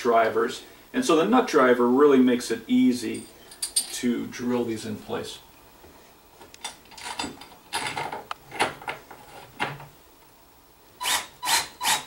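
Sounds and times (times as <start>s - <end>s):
drill motor whirring: 11.0s - 12.0s.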